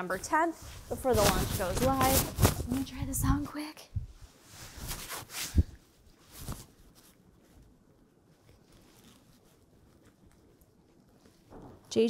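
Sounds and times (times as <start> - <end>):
fabric rustling: 0.1 - 12.0
thumps: 11.5 - 12.0.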